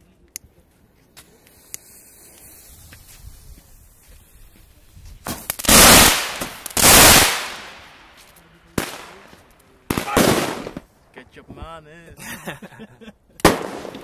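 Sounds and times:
fireworks cracking and bursting: 0:01.2 - 0:10.9, 0:13.4 - 0:14.0.

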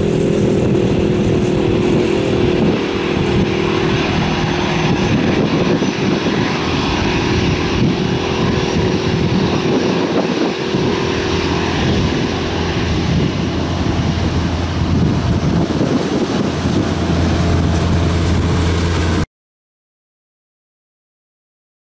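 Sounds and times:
jet engines rumbling at takeoff: 0:00.0 - 0:19.3
low hum: 0:00.0 - 0:19.3.

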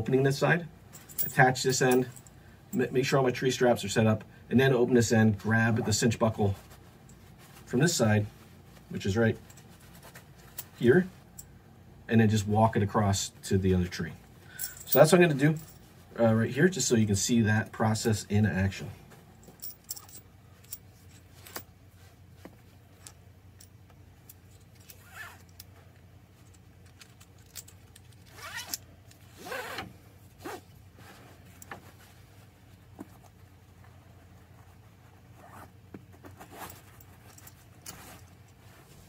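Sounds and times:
strap sliding through buckle: 0:24.3 - 0:25.7, 0:26.4 - 0:32.1, 0:32.8 - 0:39.0.

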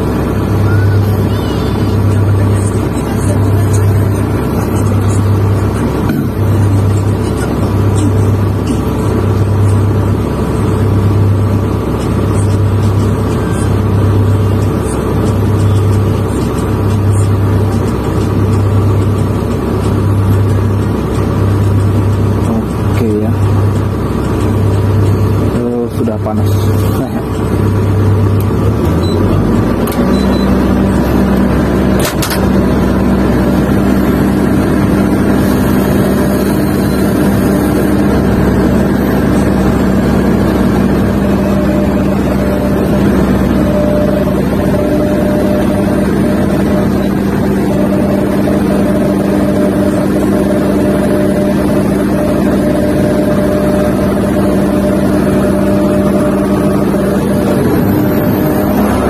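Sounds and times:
excavator diesel engine running: 0:00.0 - 0:59.0
sharp click: 0:32.0 - 0:32.5.

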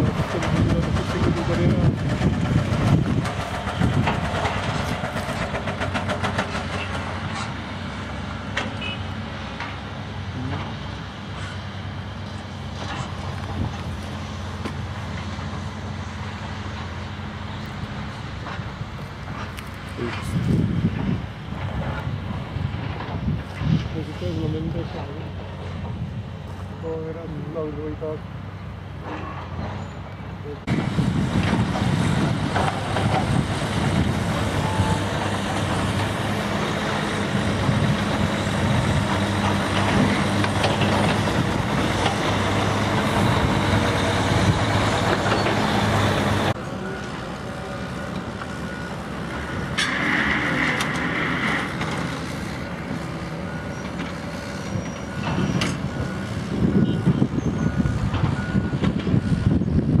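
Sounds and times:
construction machinery: 0:00.0 - 1:00.0
heavy diesel engine running: 0:00.0 - 1:00.0
reversing alarm beeping: 0:46.7 - 0:50.6, 0:53.1 - 0:59.8.

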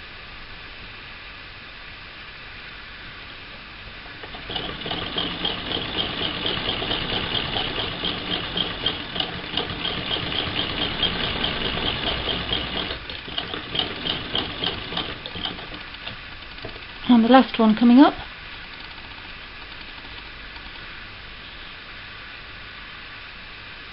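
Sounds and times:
sewing machine stitching: 0:03.9 - 0:21.0.

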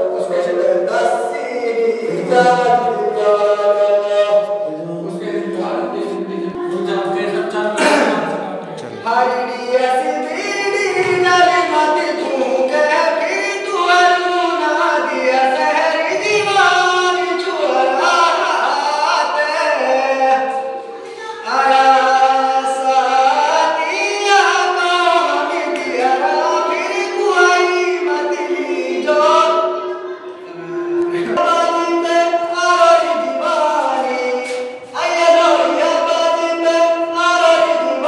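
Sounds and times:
man singing folk song unaccompanied: 0:00.0 - 0:08.2, 0:09.0 - 0:38.0.

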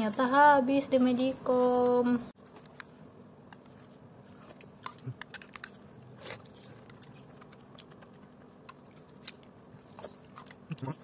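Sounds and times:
faint chewing: 0:03.5 - 0:11.0.

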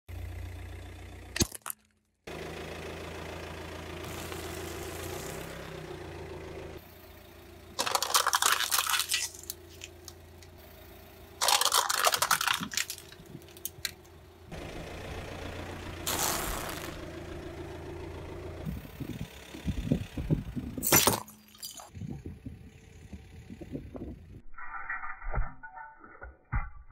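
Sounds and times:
car engine idling: 0:00.1 - 0:01.4, 0:02.3 - 0:24.4
tyre crushing brittle objects: 0:07.8 - 0:10.2, 0:11.4 - 0:14.0.

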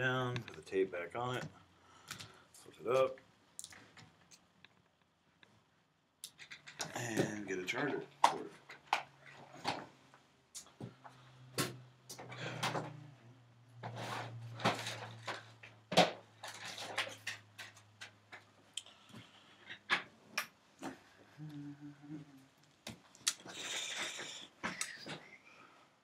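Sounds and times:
objects clicking and knocking: 0:06.2 - 0:09.9, 0:13.8 - 0:21.0
low steady hum: 0:21.0 - 0:22.7.

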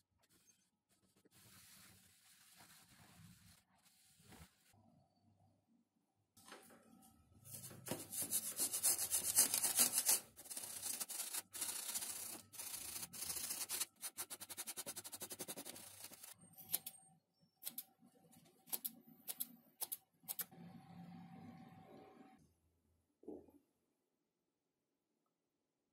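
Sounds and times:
sponge scrubbing on foam: 0:01.1 - 0:04.7, 0:07.8 - 0:16.3.

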